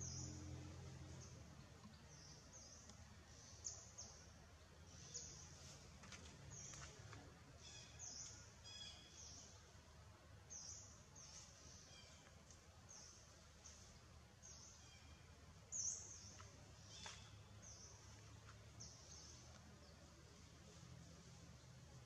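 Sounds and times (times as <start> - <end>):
outdoor background noise: 0.0 - 22.0
small birds chirping: 0.0 - 22.0.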